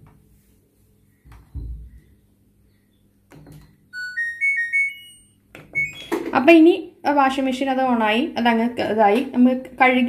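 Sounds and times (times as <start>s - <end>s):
washing machine electronic beeps: 3.7s - 6.3s.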